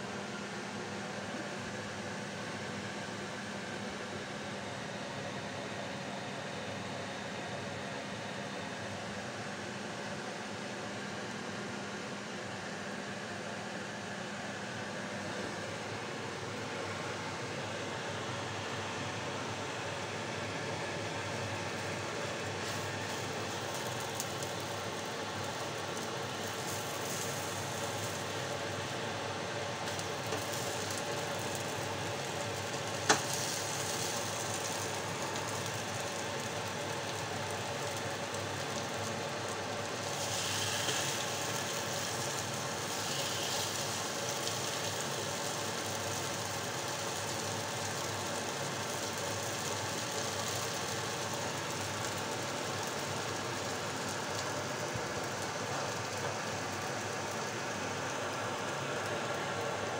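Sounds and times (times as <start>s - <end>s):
batter sizzling in a pan: 19.6s - 59.9s.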